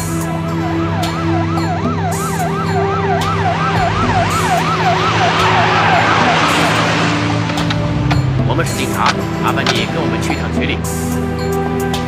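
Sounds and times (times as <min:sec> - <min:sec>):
police siren wailing: 0:00.0 - 0:10.0
rush of noise: 0:03.3 - 0:08.8.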